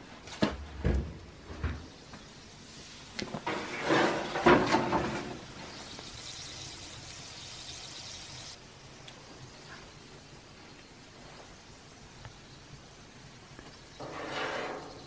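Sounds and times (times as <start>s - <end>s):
meat sizzling in oven: 1.4s - 15.0s.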